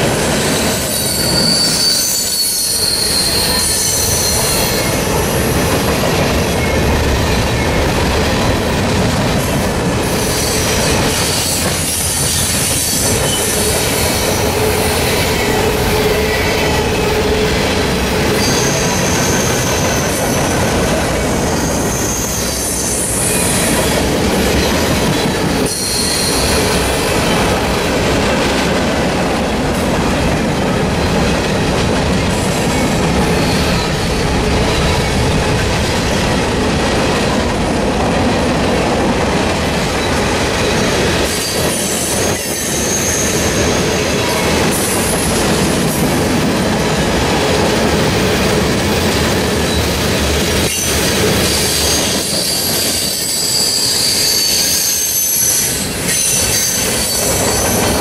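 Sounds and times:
train wheels rumbling on rail: 0.0s - 58.0s
wheel squeals: 0.6s - 5.0s, 18.3s - 20.6s, 21.4s - 26.9s, 50.6s - 58.0s.

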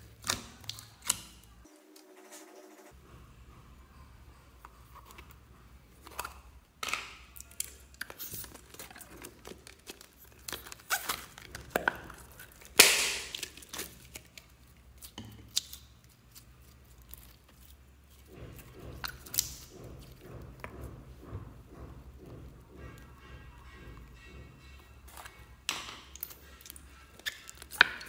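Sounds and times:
slime crackling and popping: 7.0s - 17.8s, 19.0s - 19.7s, 25.2s - 28.0s.

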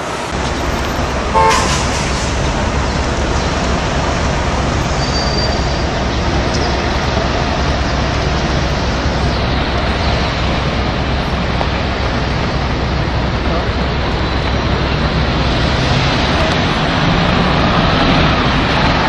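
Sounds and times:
cars driving past: 0.0s - 19.0s
faint high squeal: 4.8s - 5.9s.

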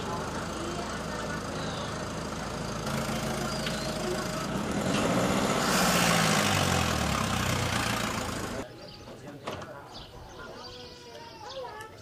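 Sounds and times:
vehicle engine passing by: 0.0s - 8.7s.

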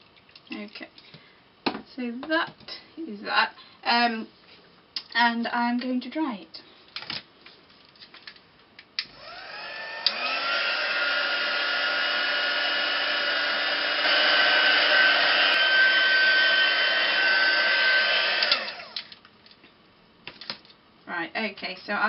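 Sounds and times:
heat tool fan whine: 9.0s - 19.2s.

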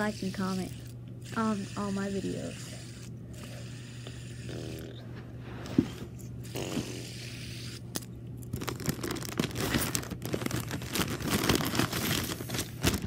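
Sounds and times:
steady low hum: 0.0s - 13.0s
rustling and crinkling handling noise: 8.4s - 13.0s.

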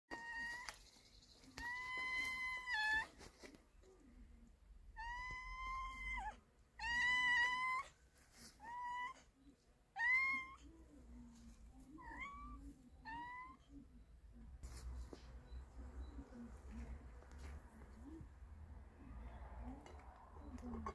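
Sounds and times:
cats meowing: 0.1s - 0.8s, 1.4s - 3.4s, 4.9s - 10.7s, 11.8s - 13.8s.

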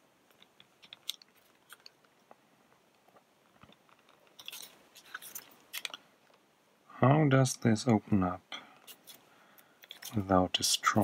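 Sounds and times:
plastic housing clicking and crackling: 0.3s - 6.4s, 9.8s - 10.2s.

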